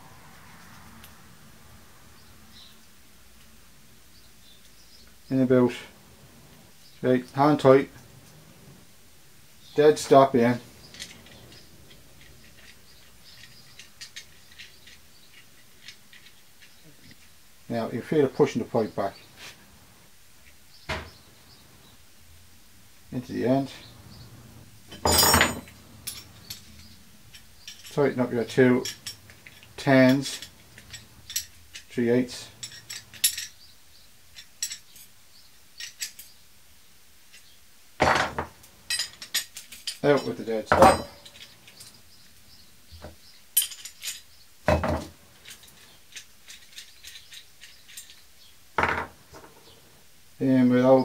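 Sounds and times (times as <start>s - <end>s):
metal clatter: 24.9s - 28.0s, 38.0s - 42.0s.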